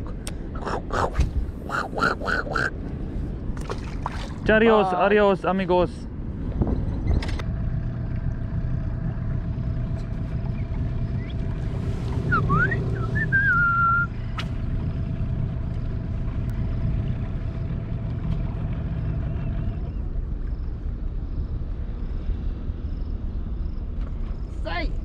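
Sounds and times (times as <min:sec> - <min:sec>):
boat motor running: 0:00.0 - 0:22.8
gliding whistle: 0:11.2 - 0:14.5.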